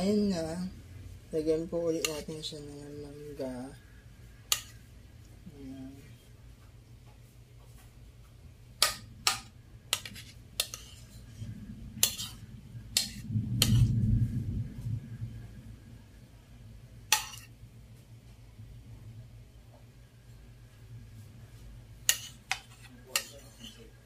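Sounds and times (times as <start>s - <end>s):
low rumbling handling noise: 7.8s - 20.0s.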